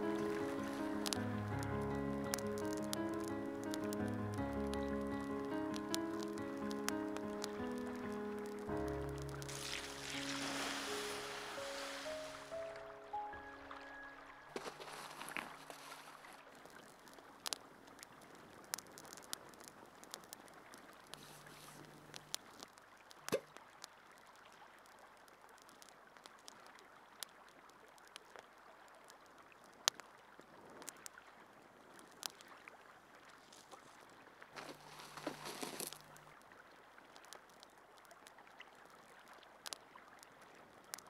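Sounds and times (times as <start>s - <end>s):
running water: 0.0s - 4.9s, 6.2s - 18.6s, 33.2s - 37.1s
light clicks and ticks: 0.0s - 9.5s, 16.6s - 23.6s, 39.6s - 39.8s.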